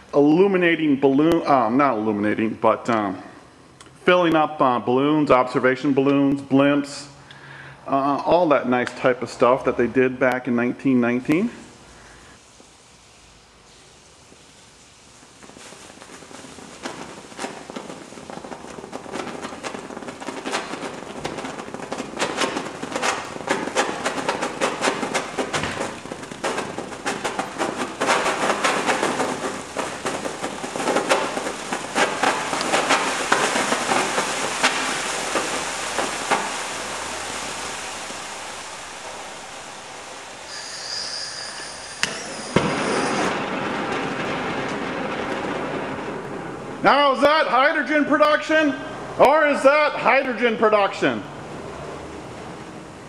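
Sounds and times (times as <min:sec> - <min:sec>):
chemical reaction fizzing and popping: 0:11.7 - 0:47.8
rushing jet of flame: 0:12.3 - 0:47.3
sharp crack: 0:15.4 - 0:40.6, 0:42.0 - 0:48.6.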